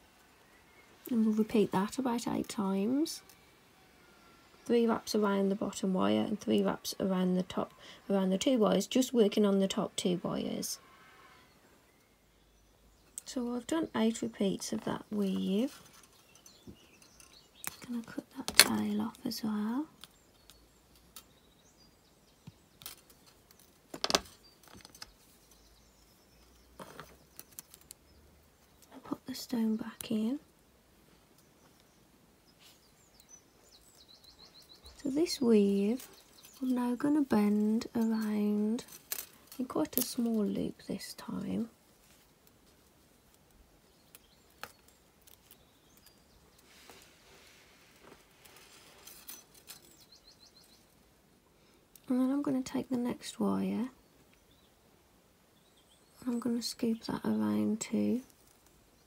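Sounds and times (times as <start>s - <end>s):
wire rustling in fingers: 13.0s - 51.1s, 57.8s - 59.0s.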